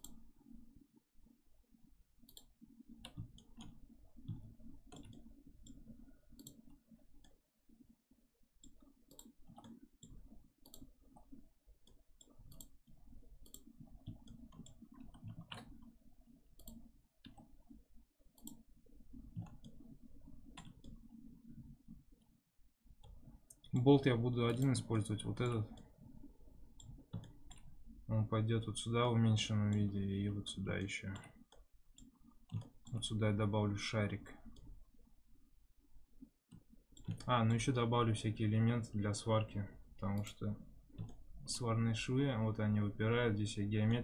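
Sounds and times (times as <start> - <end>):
computer mouse clicking: 0.0 - 0.3, 2.2 - 7.4, 8.6 - 22.3, 23.0 - 28.0, 30.8 - 33.2, 34.4 - 35.0, 36.2 - 37.9, 40.0 - 41.6
low steady hum: 0.0 - 44.0.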